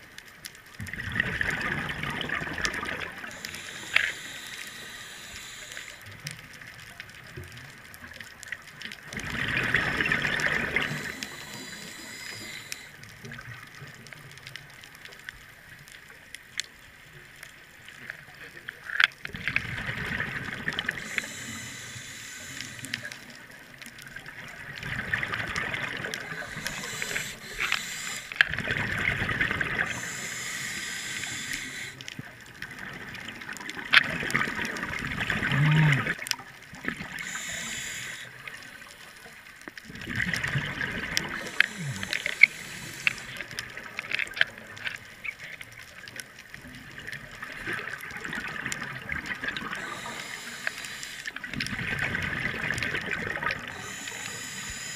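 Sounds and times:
exhaled air bubbling: 0.8s - 6.6s, 8.6s - 14.2s, 19.2s - 45.5s, 46.6s - 54.9s
scuba regulator hissing inhalations: 3.2s - 6.2s, 9.6s - 13.0s, 20.8s - 23.4s, 25.6s - 28.6s, 29.4s - 32.1s, 37.0s - 39.2s, 41.3s - 43.8s, 49.6s - 51.6s, 53.6s - 54.9s.

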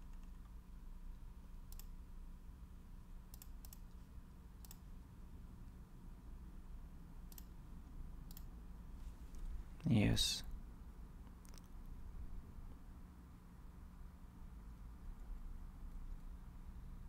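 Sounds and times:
computer mouse clicks: 0.0s - 2.0s, 3.3s - 4.9s, 7.3s - 7.6s, 8.2s - 8.5s
low steady hum: 0.0s - 17.0s.

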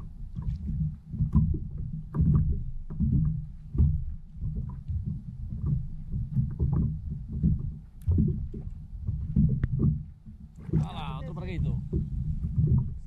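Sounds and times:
water slapping against kayak hull: 0.0s - 13.0s.

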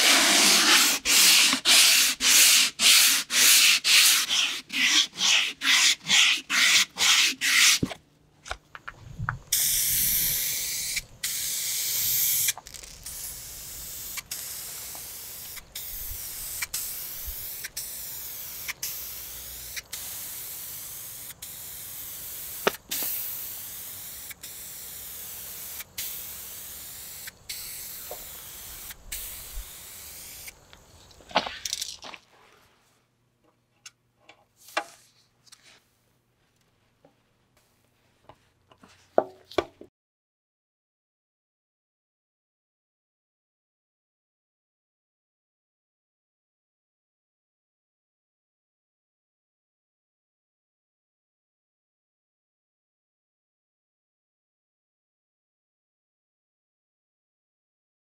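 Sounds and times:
aerosol spray can hissing: 0.0s - 7.8s, 9.5s - 30.6s
hand sanding metal: 0.0s - 7.9s.

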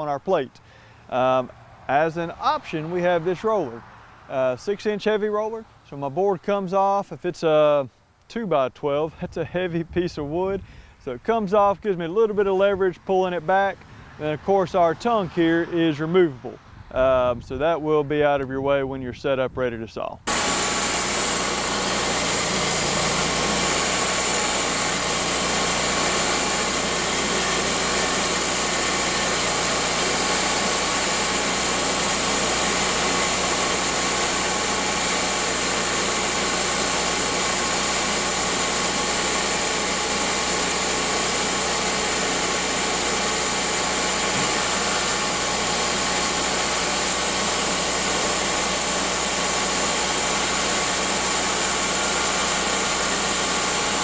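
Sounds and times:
sawmill engine running: 0.0s - 5.7s, 20.3s - 54.0s.

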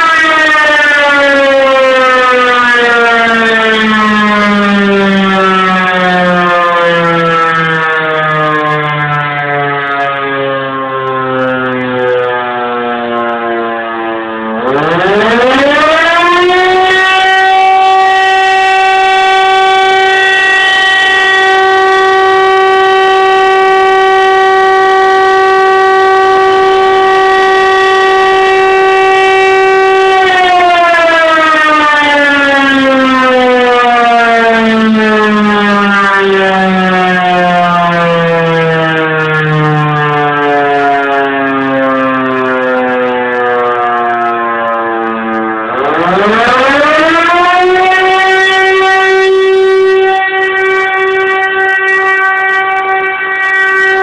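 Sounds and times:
alarm siren wailing: 0.0s - 54.0s.

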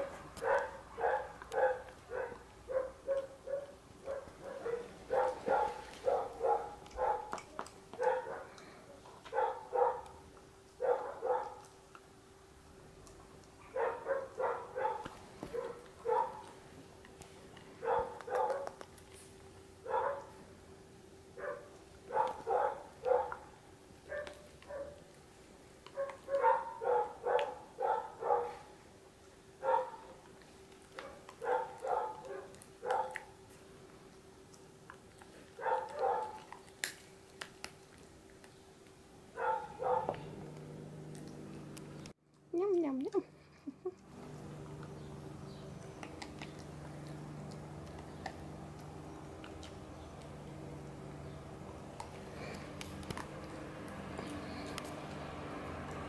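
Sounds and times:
dog barking: 0.0s - 8.6s, 9.3s - 10.2s, 10.8s - 11.7s, 13.6s - 16.5s, 17.8s - 18.8s, 19.8s - 20.4s, 21.4s - 23.5s, 24.1s - 25.0s, 25.9s - 28.7s, 29.6s - 30.2s, 31.0s - 33.3s, 35.6s - 36.6s, 39.3s - 40.4s
faint steady hum: 0.0s - 56.0s.

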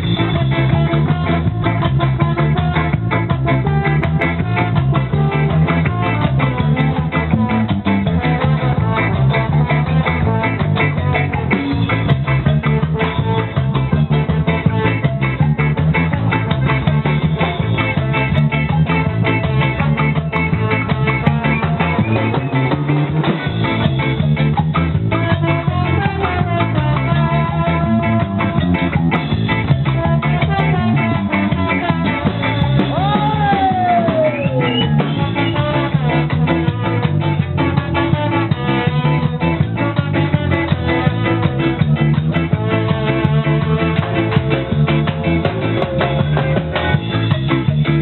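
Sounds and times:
live ska band playing: 0.0s - 48.0s.

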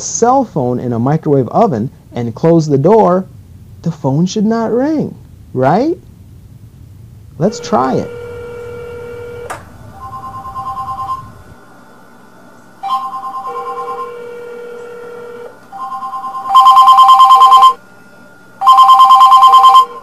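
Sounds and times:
cell phone ringtone trilling: 7.5s - 11.4s, 12.8s - 17.8s, 18.6s - 20.0s.

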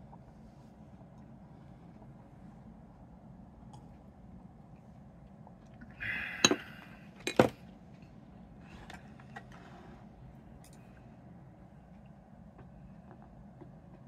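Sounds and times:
breath rushing: 5.9s - 7.1s.

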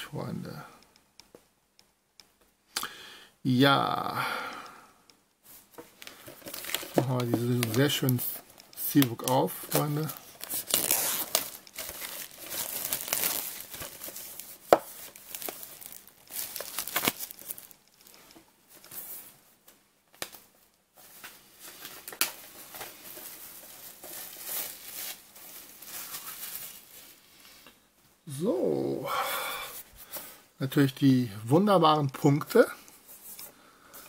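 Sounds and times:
plastic shrink-wrap crinkling: 5.9s - 19.2s, 20.2s - 27.3s.

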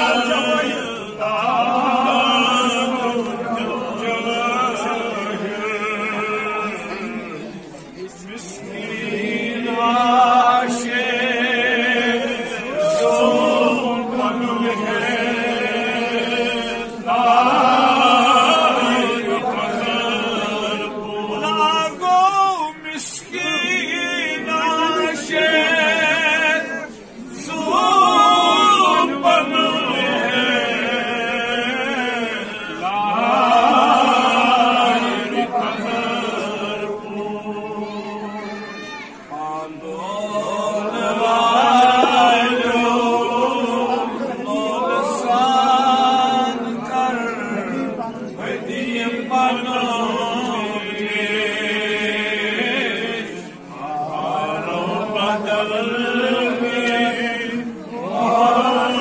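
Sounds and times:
man singing devotional song: 0.0s - 38.3s.

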